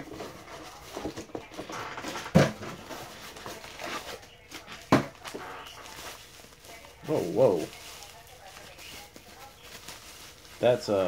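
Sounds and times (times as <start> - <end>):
cardboard and bubble wrap rustling: 0.0 - 11.0.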